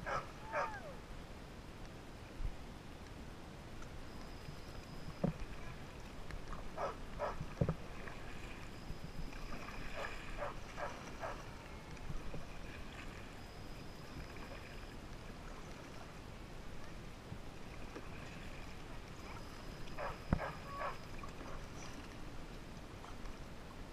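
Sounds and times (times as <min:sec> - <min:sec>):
paddle splashing in water: 0:05.0 - 0:13.4, 0:14.0 - 0:16.9, 0:17.6 - 0:23.4.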